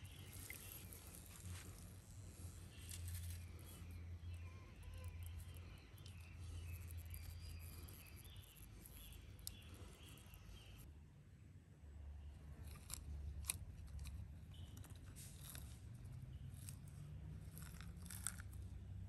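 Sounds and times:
birds chirping: 0:00.0 - 0:10.9.

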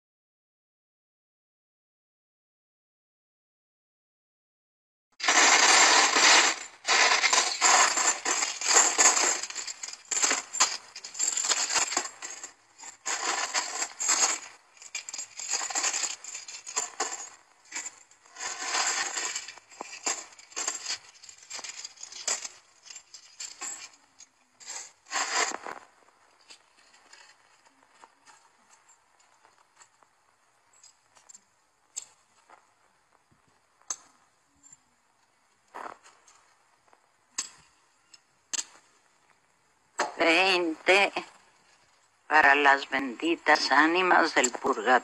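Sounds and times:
coins clinking: 0:05.2 - 0:25.6.

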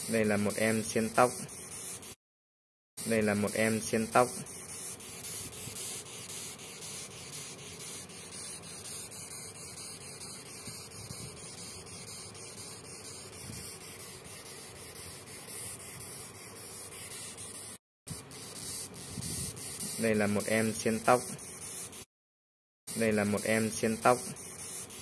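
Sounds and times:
beetle stridulating: 0:03.0 - 0:22.0, 0:22.9 - 0:25.0.

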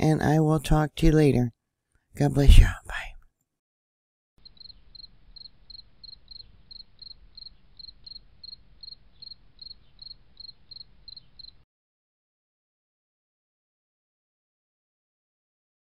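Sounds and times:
cricket-like chirping: 0:04.4 - 0:11.6.

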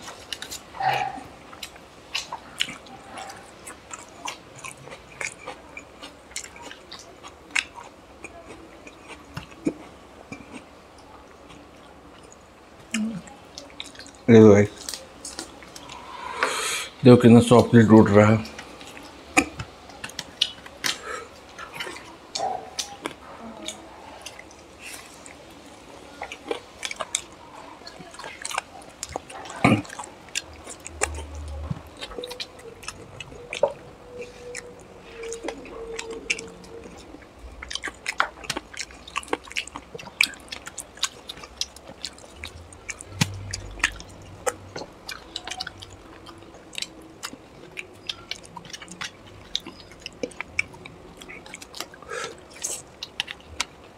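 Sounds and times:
chewing and lip-smacking: 0:00.0 - 0:16.5, 0:18.4 - 0:53.9.

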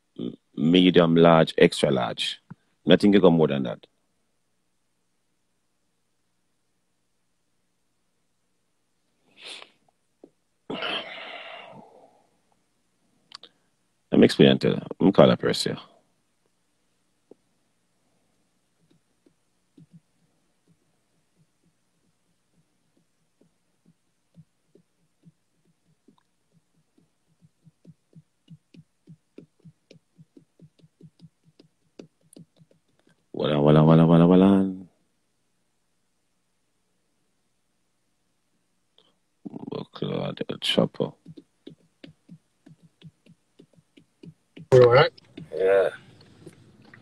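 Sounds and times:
man sniffing: 0:09.2 - 0:09.8.

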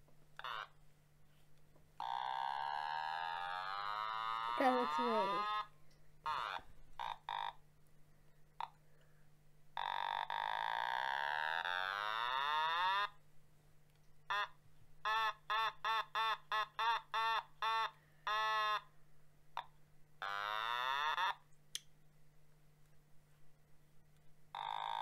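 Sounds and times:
electronic synth toy notes: 0:03.4 - 0:05.7.

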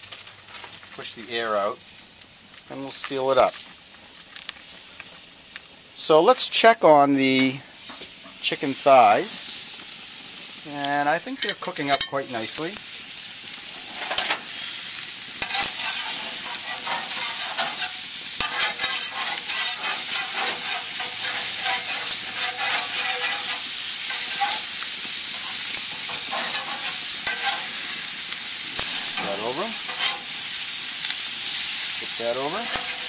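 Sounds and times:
chicken sizzling on grill: 0:00.0 - 0:33.0
spatula scraping grill grates: 0:11.3 - 0:33.0.

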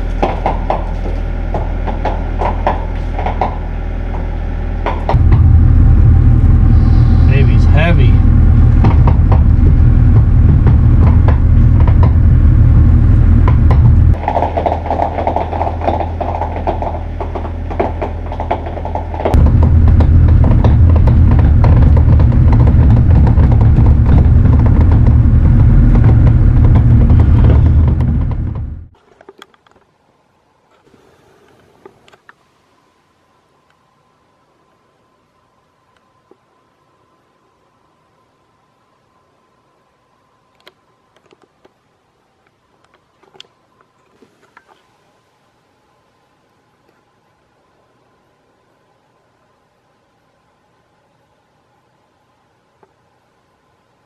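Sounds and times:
diesel engine idling: 0:00.0 - 0:29.0
low engine drone in cab: 0:00.9 - 0:29.0.

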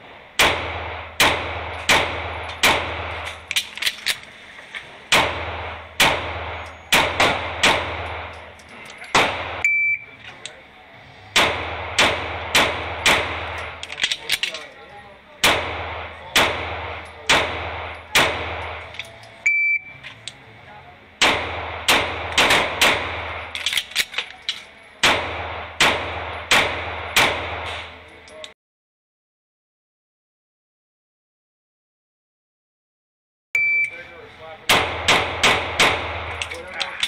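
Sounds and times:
pistol shots echoing indoors: 0:00.4 - 0:03.3, 0:05.1 - 0:08.4, 0:11.3 - 0:14.6, 0:15.4 - 0:19.1, 0:21.2 - 0:28.0, 0:34.7 - 0:36.6
shot timer beep: 0:09.6 - 0:10.2, 0:19.4 - 0:20.0, 0:33.6 - 0:34.0.

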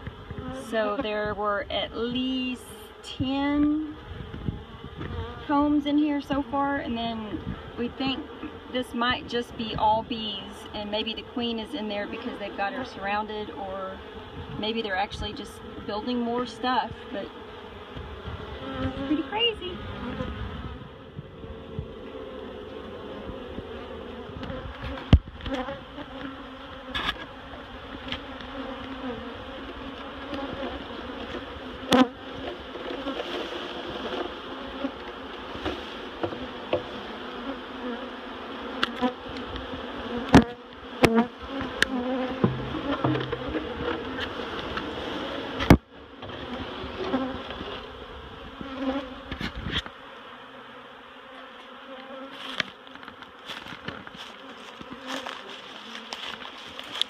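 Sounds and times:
honeybees buzzing: 0:00.0 - 0:57.0
sharp knocks and bumps: 0:42.4 - 0:44.0.

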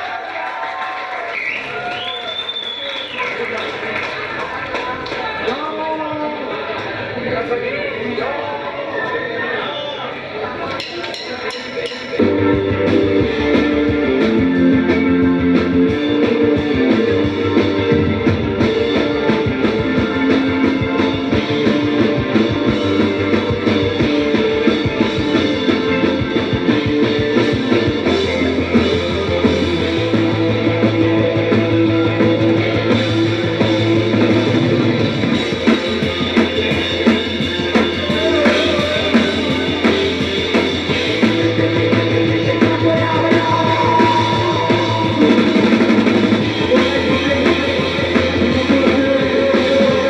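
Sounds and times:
drum kit beat: 0:10.8 - 0:50.0
rock music: 0:11.1 - 0:50.0
bass line: 0:12.2 - 0:50.0
electric guitar chords: 0:12.2 - 0:50.0.

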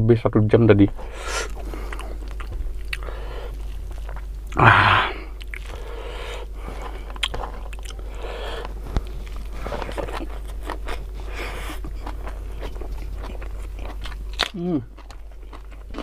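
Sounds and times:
chewing and crunching food: 0:00.9 - 0:16.0
loud breathy burst: 0:04.6 - 0:06.5.

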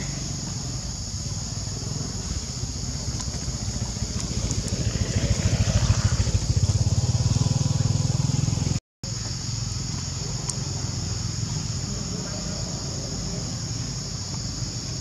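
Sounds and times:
engine throbbing: 0:01.6 - 0:08.8.

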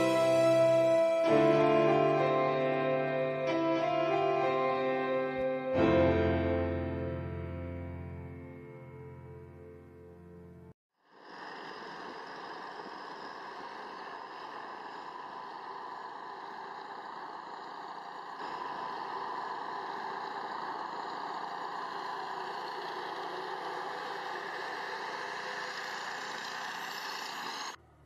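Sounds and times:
heavy truck engines humming: 0:00.0 - 0:05.8, 0:12.8 - 0:28.0.

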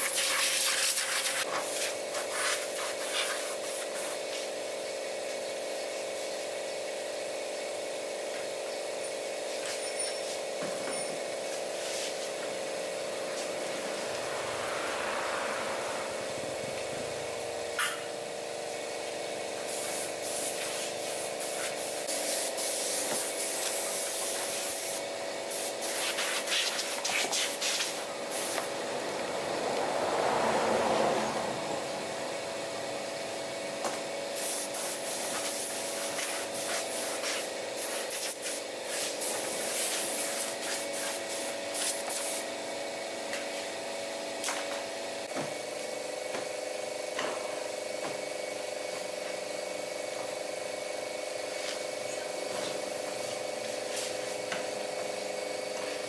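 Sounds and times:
rubbing and hissing: 0:00.0 - 0:04.2, 0:11.5 - 0:12.5, 0:19.7 - 0:28.7
steady mechanical hum: 0:00.0 - 0:56.0.

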